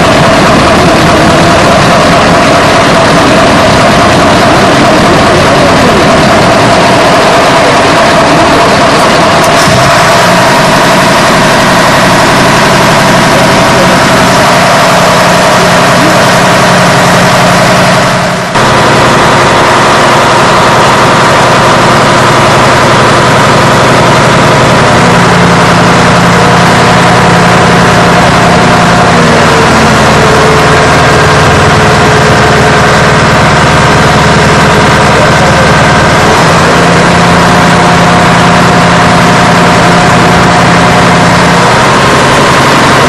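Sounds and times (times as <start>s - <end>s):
fire truck engine running: 0.0s - 43.0s.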